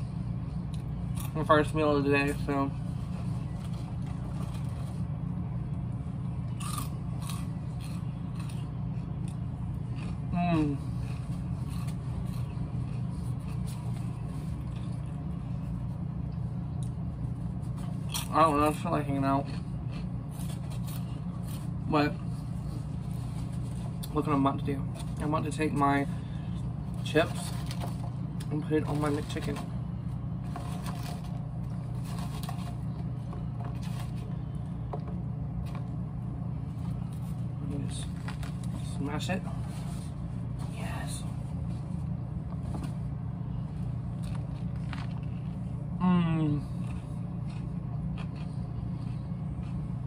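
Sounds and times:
steady low hum: 0.0s - 50.0s
person chewing crunchy snacks: 6.3s - 15.9s, 17.6s - 25.5s, 30.4s - 34.9s, 44.0s - 50.0s
crinkly snack crackles: 26.9s - 29.8s, 30.4s - 34.7s, 44.0s - 45.6s.

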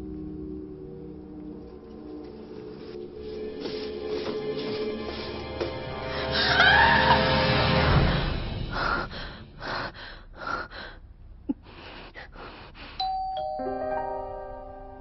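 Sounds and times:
woman breathing heavily: 5.0s - 6.7s, 7.8s - 13.1s
ringing chime tones: 13.0s - 15.0s.

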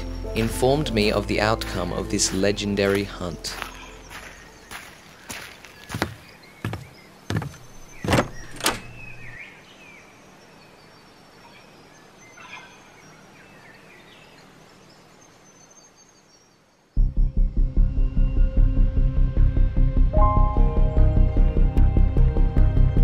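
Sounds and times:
heavy footsteps: 1.7s - 8.6s.

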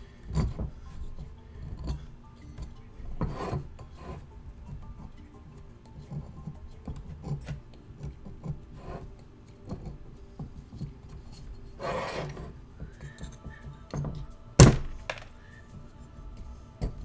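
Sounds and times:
metal tool scraping plaster: 0.0s - 5.2s, 6.0s - 14.2s.

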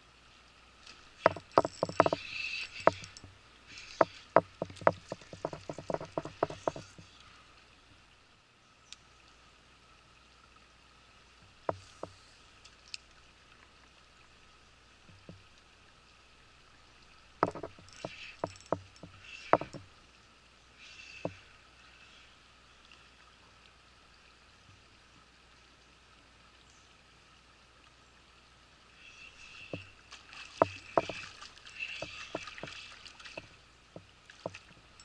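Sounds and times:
faint river-bank background: 0.0s - 35.0s
sharp clicks and knocks: 1.2s - 3.3s, 4.0s - 7.0s, 17.4s - 19.9s, 30.6s - 31.2s.

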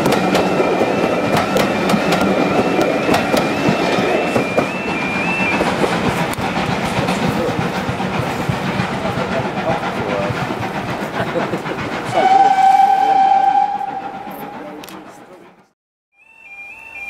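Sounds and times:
train wheels rumbling on rail: 0.0s - 15.8s
steam locomotive whistle: 12.1s - 15.0s.

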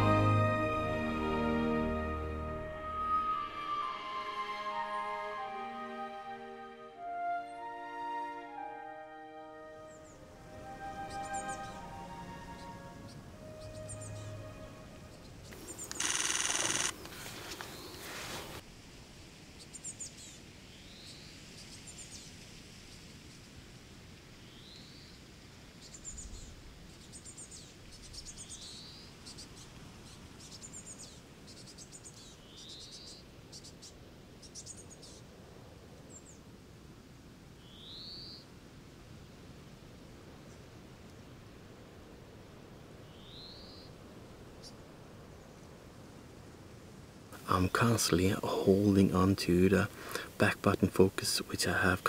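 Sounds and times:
faint outdoor hiss: 0.0s - 52.0s
finches chirping: 11.0s - 18.1s.

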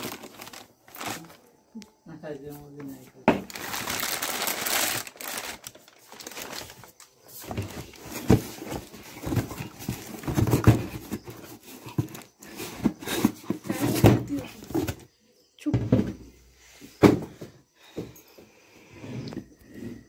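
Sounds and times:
plastic wrapping rustling: 0.0s - 1.5s, 3.3s - 14.1s
knocks and thumps: 7.4s - 16.4s, 17.0s - 18.2s.

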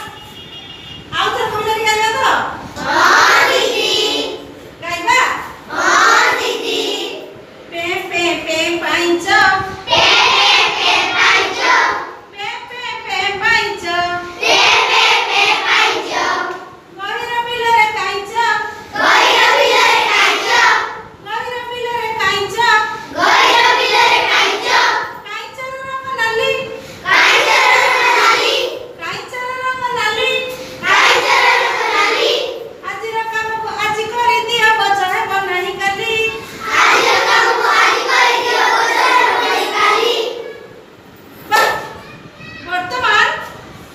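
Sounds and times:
children singing in chorus: 36.6s - 40.4s.

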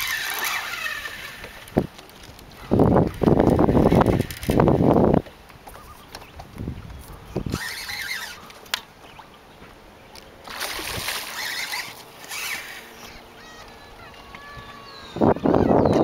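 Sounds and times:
fish splashing at surface: 10.4s - 12.0s.

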